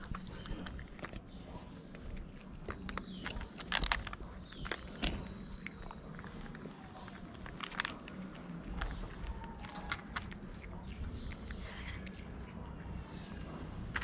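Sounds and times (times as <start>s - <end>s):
cat crunching dry kibble: 0.0s - 14.0s.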